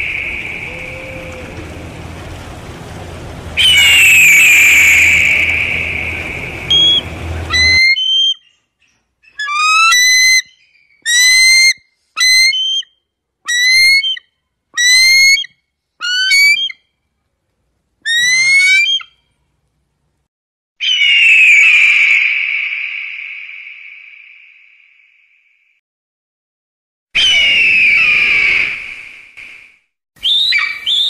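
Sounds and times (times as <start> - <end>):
steady high drone: 0.0 - 7.9
bird of prey whistled calls: 3.6 - 6.0, 6.7 - 8.6, 9.2 - 12.9, 13.5 - 14.2, 14.8 - 16.8, 18.1 - 19.2, 20.8 - 24.2, 27.2 - 29.0, 30.2 - 31.0.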